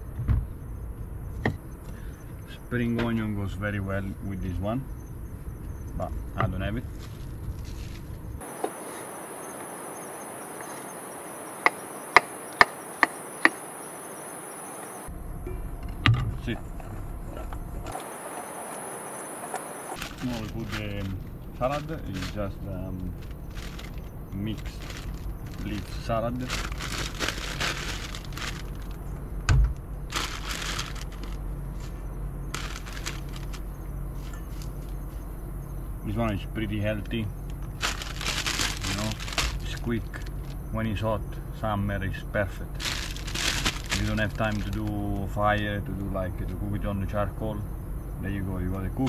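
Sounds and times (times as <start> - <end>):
dull low thump: 0.0 - 2.0, 15.4 - 18.0, 26.5 - 33.6
insect chorus: 0.0 - 49.0
plastic bag crinkling: 20.0 - 29.1, 30.1 - 34.9, 37.5 - 40.6, 42.8 - 45.0.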